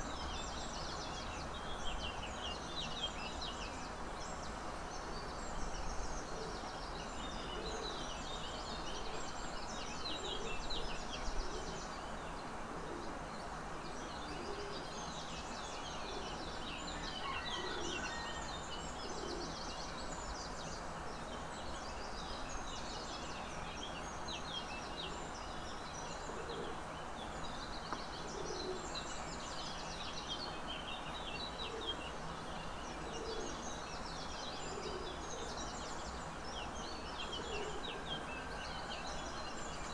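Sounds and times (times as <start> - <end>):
ambient hiss: 0.0 - 39.9
small birds chirping: 18.1 - 39.9.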